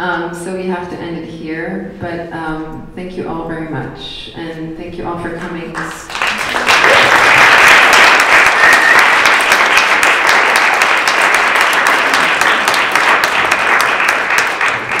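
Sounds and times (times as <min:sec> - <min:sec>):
crowd applauding: 0:05.7 - 0:15.0.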